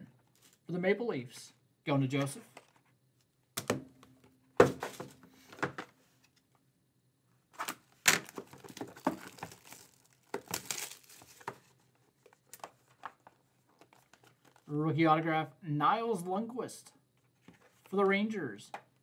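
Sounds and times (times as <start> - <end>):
cardboard and wrapping crinkling: 7.6 - 14.7.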